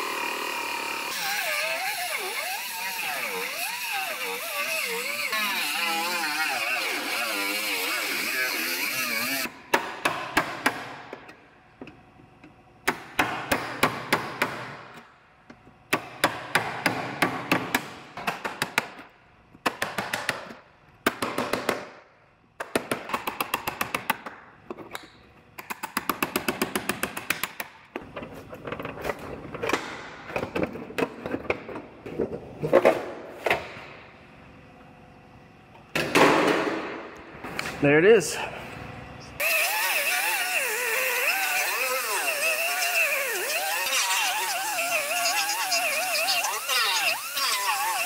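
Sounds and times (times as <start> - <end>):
air cut-off tool on metal: 0.0 - 9.5, 39.4 - 48.0
pneumatic chisel hammering metal: 0.0 - 10.9, 39.4 - 48.0.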